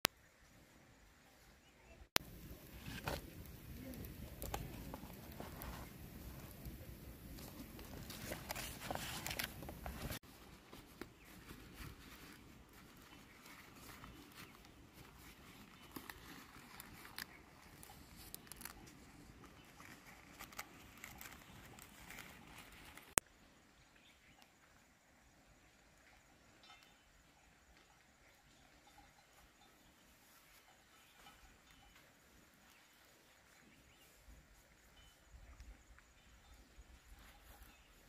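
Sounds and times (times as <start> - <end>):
faint clicks and crackles: 2.1 - 23.2
leaves rustling and crinkling: 2.1 - 23.3.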